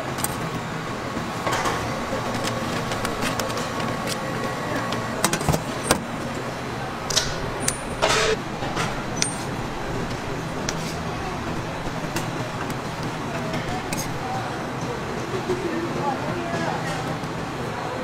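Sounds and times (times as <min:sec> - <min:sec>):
busy street food stall: 0:00.0 - 0:18.0
sharp clicks and knocks: 0:07.0 - 0:09.5.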